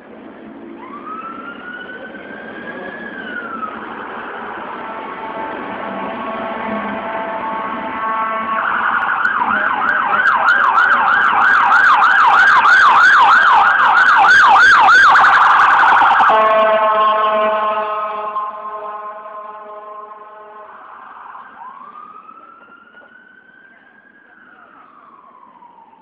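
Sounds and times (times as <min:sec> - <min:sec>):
emergency vehicle siren: 0:00.0 - 0:26.0.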